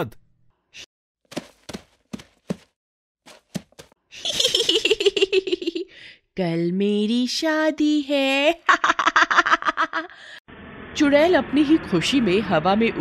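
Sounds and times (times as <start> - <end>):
soft thuds: 1.3 - 2.7, 3.3 - 4.0
cartoon witch cackling laugh: 4.2 - 5.8, 8.6 - 10.1.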